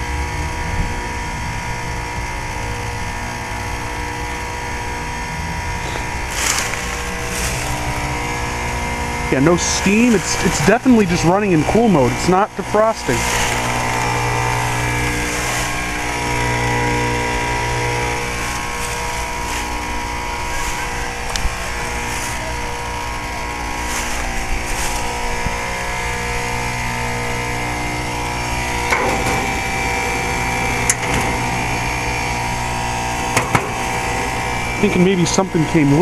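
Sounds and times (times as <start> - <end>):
heat pump unit humming: 0.0 - 36.0.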